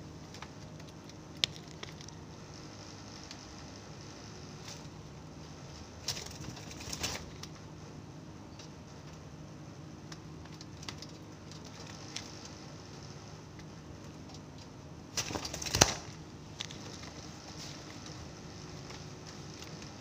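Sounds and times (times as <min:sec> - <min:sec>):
steady low hum: 0:00.0 - 0:20.0
dove flapping wings: 0:06.0 - 0:07.4, 0:15.1 - 0:16.2.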